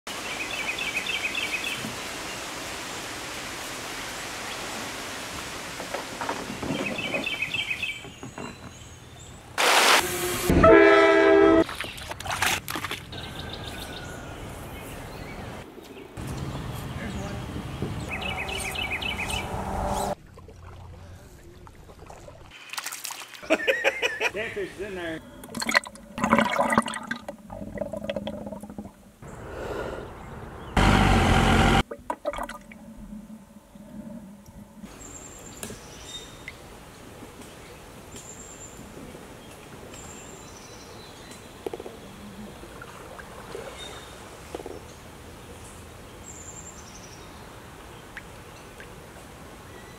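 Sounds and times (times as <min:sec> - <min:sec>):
outdoor hiss: 0:00.1 - 0:08.0, 0:09.5 - 0:10.5
water splashing and gurgling: 0:09.6 - 0:10.5, 0:11.6 - 0:13.2, 0:20.1 - 0:23.8, 0:25.2 - 0:29.2, 0:31.8 - 0:33.5, 0:42.4 - 0:44.8
fish splashing at surface: 0:20.2 - 0:23.5.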